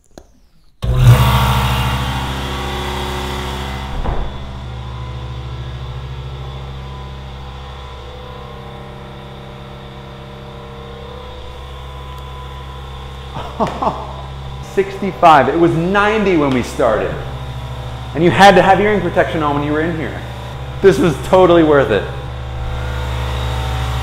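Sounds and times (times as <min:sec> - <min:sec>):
air compressor humming: 0:00.4 - 0:24.0
door thumping shut: 0:03.6 - 0:05.2.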